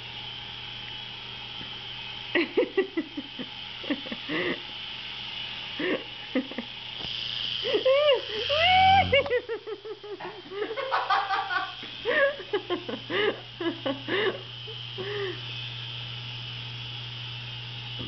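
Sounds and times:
toy helicopter motor whining: 0.0 - 18.0
person laughing: 2.4 - 4.7, 5.8 - 6.7, 7.6 - 15.5.

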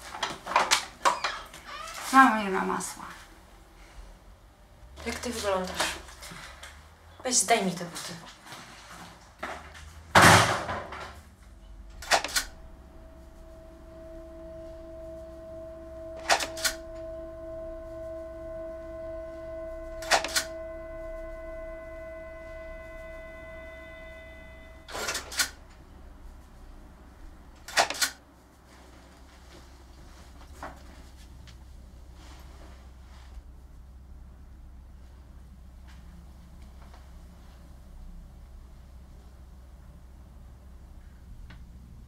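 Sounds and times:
steady held tones: 11.3 - 27.8.

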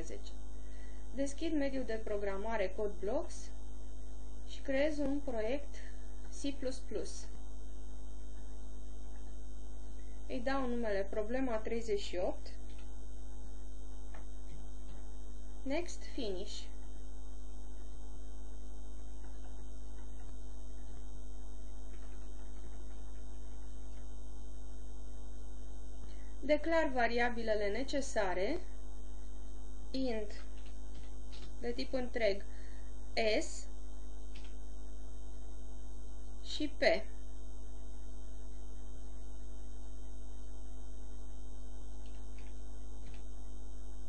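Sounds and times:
electrical mains hum: 0.0 - 44.0
faint clicks: 42.0 - 43.4.

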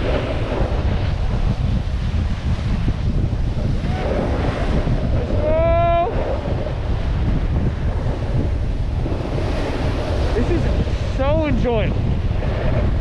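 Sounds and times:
snowboard sliding on snow: 0.0 - 13.0
wind buffeting microphone: 0.0 - 13.0
person yelling: 5.3 - 6.2.

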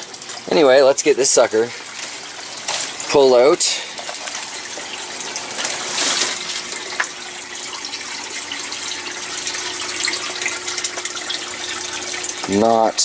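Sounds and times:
running water: 0.0 - 13.0
rustle of dry vines: 1.9 - 3.1, 5.5 - 6.7.

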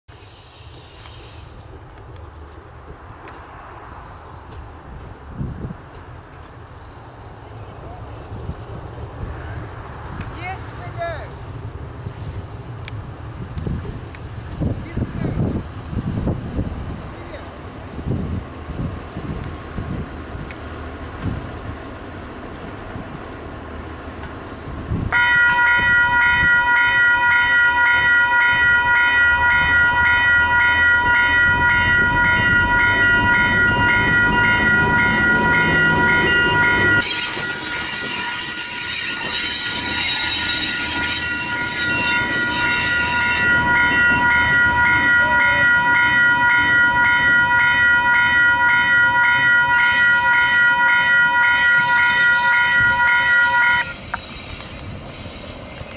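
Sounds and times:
diesel locomotive approaching: 0.1 - 55.9
level-crossing warning bells: 25.1 - 55.9.

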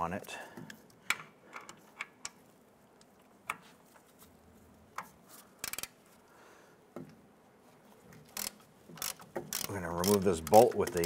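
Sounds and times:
hand tool clicking: 8.3 - 11.0.

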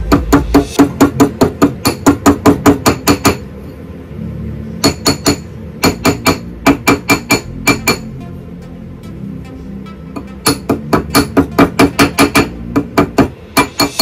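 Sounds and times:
small hammer tapping metal: 0.1 - 3.4, 4.8 - 8.1, 10.2 - 14.0.

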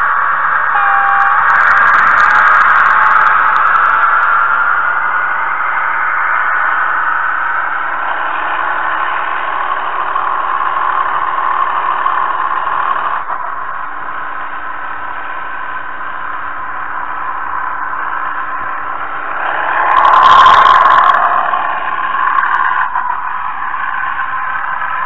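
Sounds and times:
model train motor whirring: 0.2 - 13.8.

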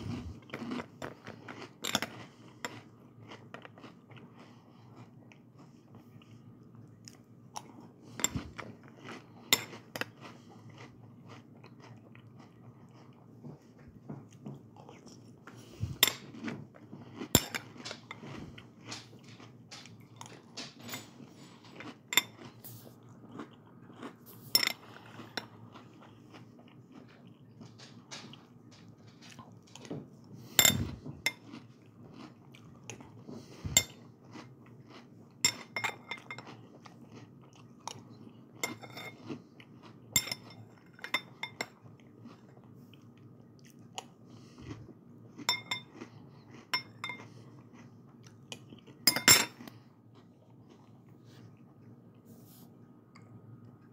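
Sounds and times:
crunching and chewing cereal: 0.0 - 53.9
spoon clinking against bowl: 40.2 - 41.7, 45.5 - 45.9, 49.1 - 49.6.

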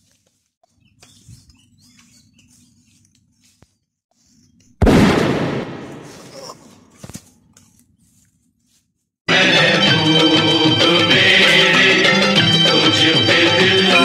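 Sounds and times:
gunshot: 4.8 - 6.4.

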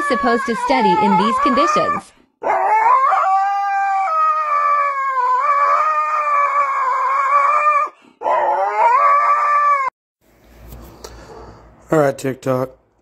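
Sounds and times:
husky howling: 0.0 - 9.9.

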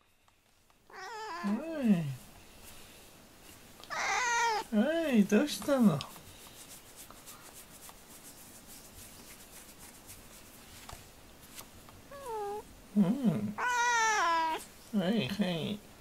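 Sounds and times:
faint rustling: 0.1 - 12.6
cat meowing: 0.9 - 1.6, 3.9 - 4.7, 12.1 - 12.6, 13.6 - 14.7.

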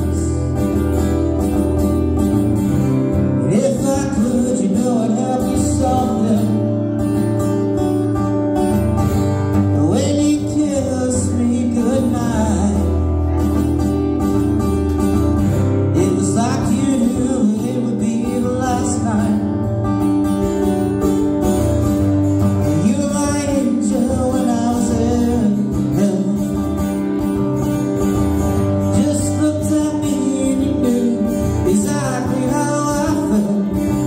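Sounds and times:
acoustic guitars strummed: 0.0 - 34.0
man singing into a microphone: 3.1 - 7.3, 9.6 - 13.6, 15.8 - 19.8, 22.5 - 27.2, 28.6 - 34.0.

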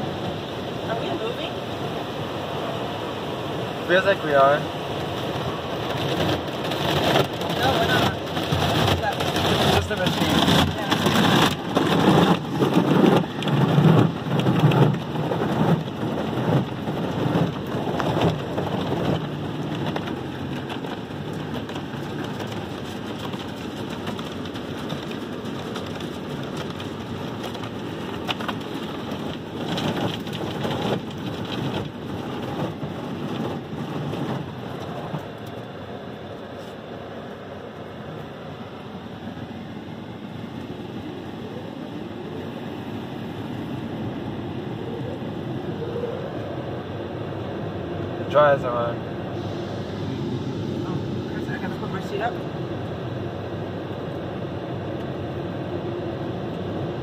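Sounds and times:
car wash brushes scrubbing: 5.4 - 35.3.

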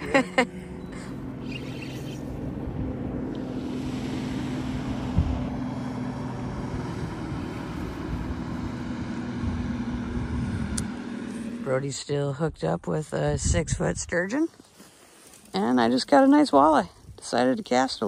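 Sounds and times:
motorboat engine hum: 0.0 - 12.1
wind on microphone: 13.2 - 14.2.

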